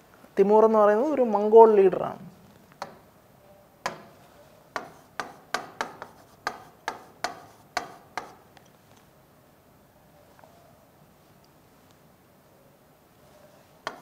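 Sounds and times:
stylus tapping on screen: 4.8 - 8.4.

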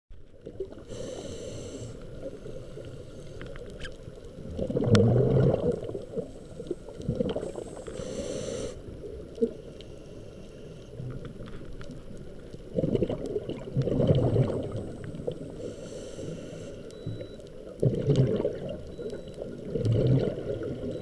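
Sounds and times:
muffled underwater rumble: 0.1 - 21.0
exhaled bubbles gurgling: 0.3 - 9.6, 10.9 - 15.8, 16.9 - 21.0
regulator inhale hiss: 0.7 - 3.7, 6.3 - 11.0, 15.0 - 17.0
faint clicks: 1.9 - 4.7, 9.3 - 13.9.

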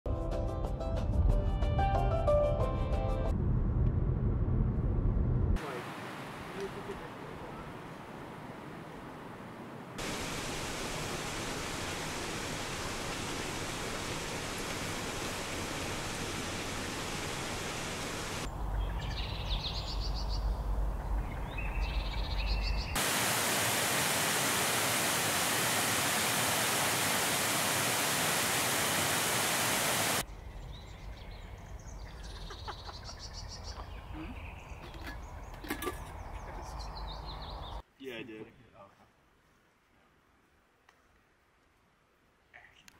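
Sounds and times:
low rumble: 3.2 - 5.6
rushing mountain creek: 5.6 - 8.8, 10.0 - 18.5, 23.0 - 30.2
birdsong: 11.6 - 23.0, 29.2 - 37.9.

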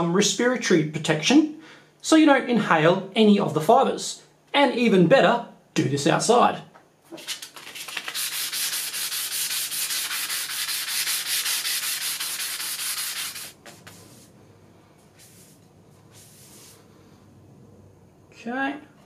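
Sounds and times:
sandpaper rubbing on tube: 7.1 - 14.3, 15.2 - 16.8.

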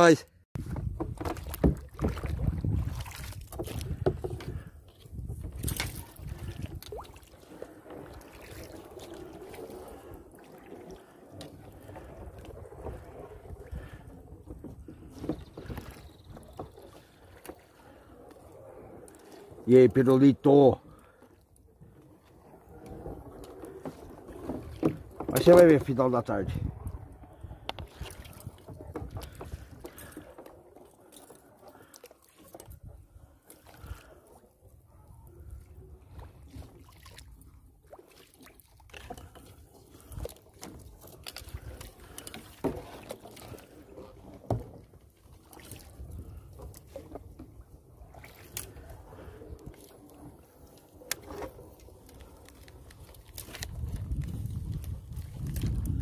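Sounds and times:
soft kayak paddle strokes: 0.0 - 56.0
water dripping off paddle: 27.4 - 34.3, 36.6 - 44.6, 45.2 - 56.0.

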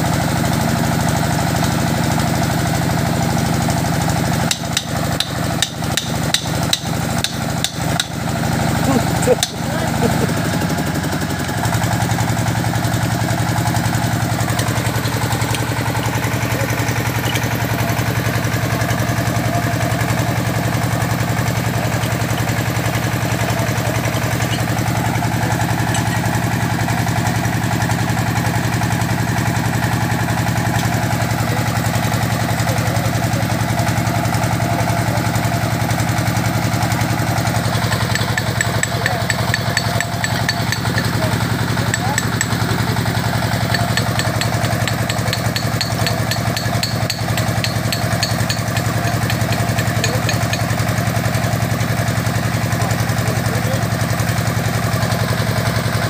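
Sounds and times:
drilling rig engine running: 0.0 - 56.0
fast high ticking: 8.8 - 27.2, 37.3 - 51.0.

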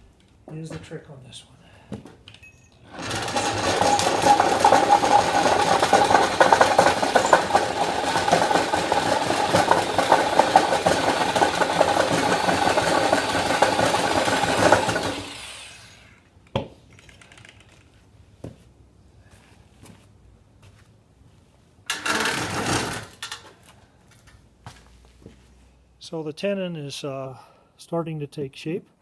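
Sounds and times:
electric drill cutting wood: 2.9 - 16.2.

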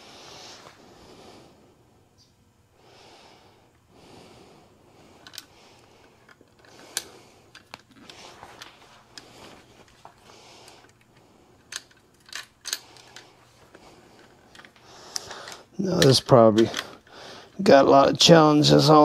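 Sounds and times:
person breathing heavily through nose: 0.0 - 1.8, 2.8 - 11.7, 12.6 - 15.8, 16.7 - 17.6
small sharp clicks of parts: 5.2 - 17.6.

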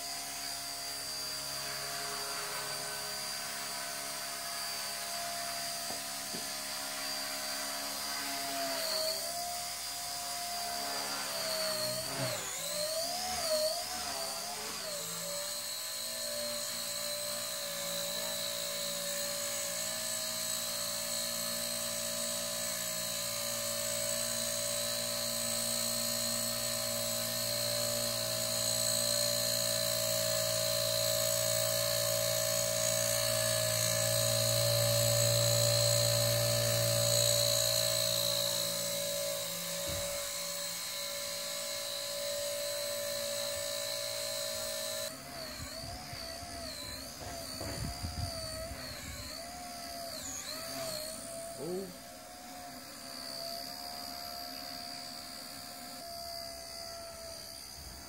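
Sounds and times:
rc helicopter rotor whine: 0.0 - 58.0.

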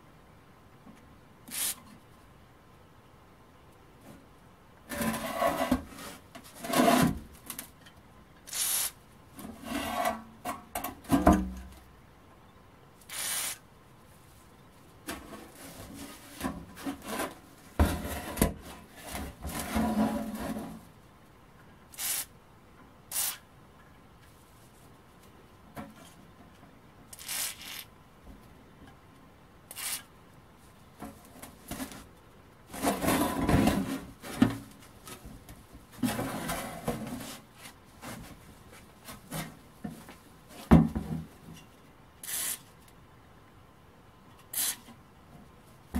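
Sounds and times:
metal scraping on metal: 4.9 - 7.2, 9.5 - 10.3.

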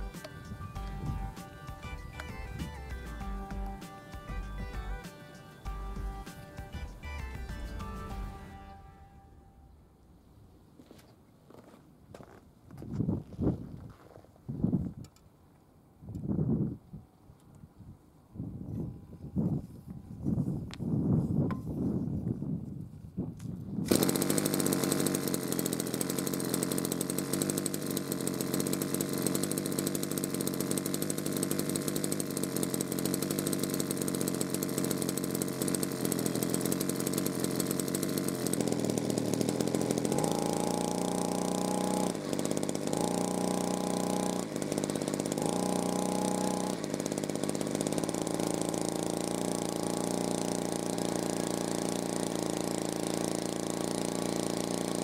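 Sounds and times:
two-stroke brush cutter engine: 0.0 - 9.4, 23.8 - 55.0.

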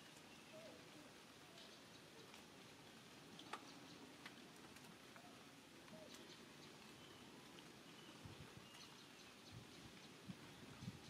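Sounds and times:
soft ticks: 3.3 - 6.4.

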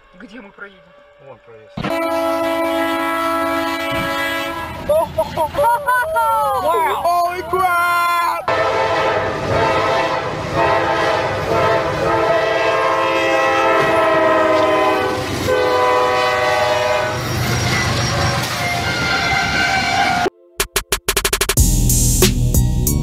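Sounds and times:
train rumbling past: 0.0 - 5.6, 8.5 - 20.3
locomotive air horn blasts: 1.8 - 4.9, 8.5 - 20.3.

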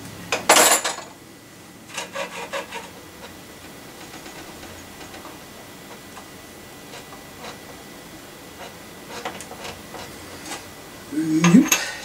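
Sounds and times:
person humming: 11.1 - 12.0.

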